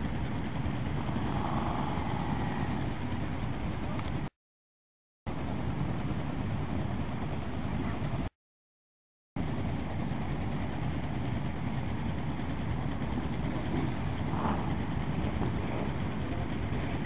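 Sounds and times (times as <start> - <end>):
motorcycle engines rumbling: 0.0 - 4.3, 9.4 - 17.0.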